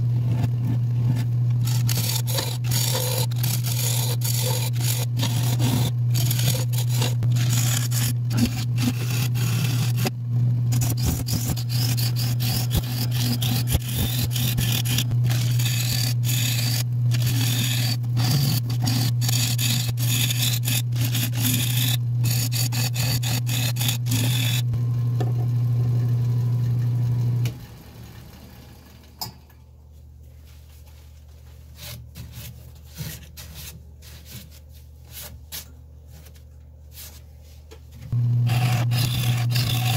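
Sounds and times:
turning tool scraping wood: 0.0s - 10.1s, 10.7s - 24.7s, 31.7s - 35.4s, 38.1s - 39.9s
wood lathe humming: 1.5s - 10.1s, 10.7s - 24.7s, 38.2s - 39.9s.

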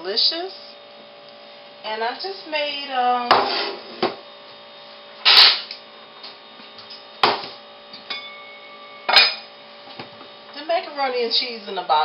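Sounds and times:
faint steady hum: 0.0s - 12.0s
metal cookware clanking: 8.1s - 9.5s.

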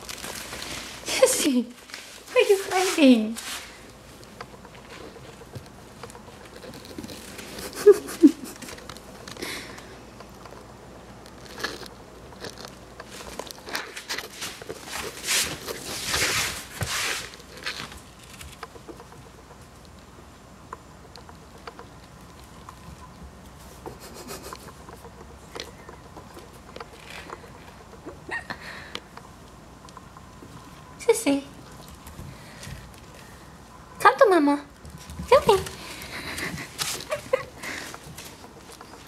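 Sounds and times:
puppy paws on hardwood floor: 0.0s - 10.5s, 11.3s - 19.4s, 34.2s - 39.0s
rustling: 0.0s - 19.9s, 34.7s - 39.0s.

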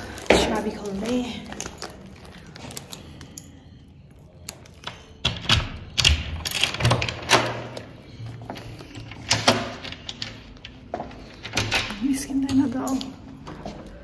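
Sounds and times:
keys jangling: 4.5s - 10.7s.

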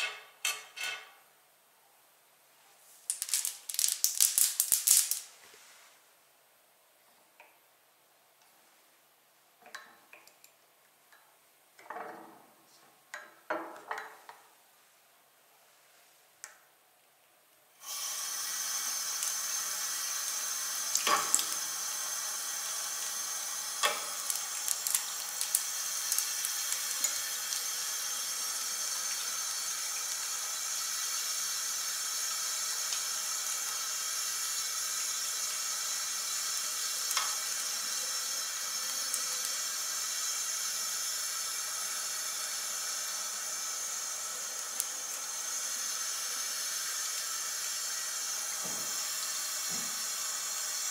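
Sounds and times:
water running into sink: 17.8s - 50.9s
tap turned on: 48.6s - 49.0s, 49.6s - 50.0s.

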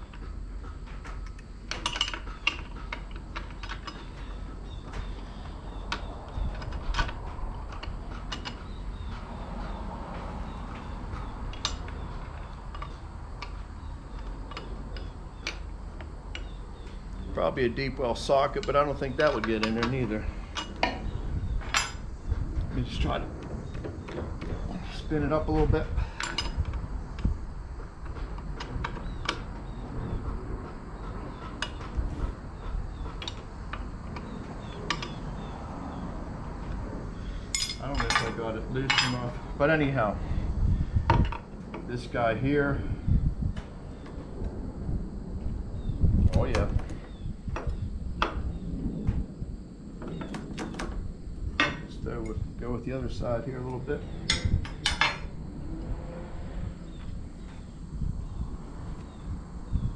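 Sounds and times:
low steady rumble: 0.0s - 59.9s
wrench clicking and clanking on metal: 1.0s - 4.3s.

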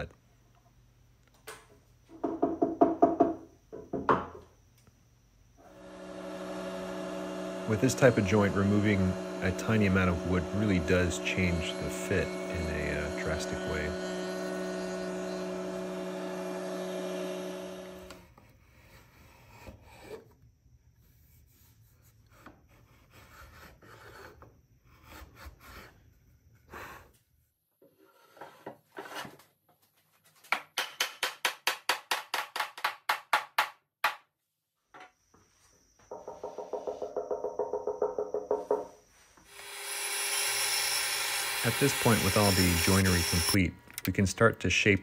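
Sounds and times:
router running: 5.6s - 18.2s, 39.5s - 44.1s
hand plane scraping wood: 7.7s - 15.6s, 21.1s - 26.0s, 27.8s - 29.4s.

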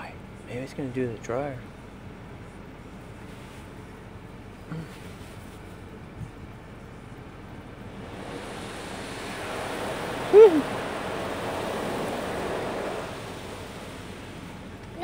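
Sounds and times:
car wash cloth strips and water rushing: 7.0s - 15.0s.

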